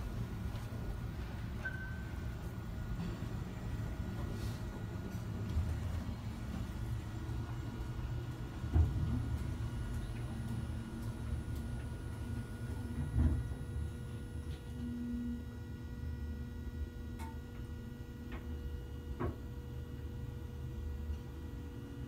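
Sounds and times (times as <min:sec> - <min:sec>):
brief low tone: 0:01.6 - 0:02.4.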